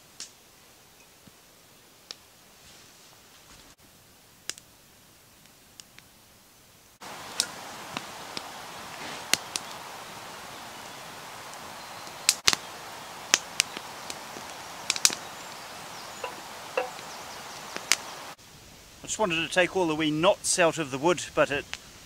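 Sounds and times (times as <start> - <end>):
wood fire crackling: 3.4 - 6.1, 7.0 - 18.4.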